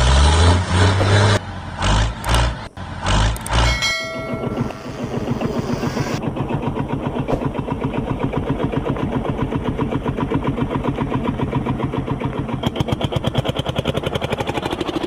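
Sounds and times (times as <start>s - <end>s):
high motor whine: 3.3s - 9.2s.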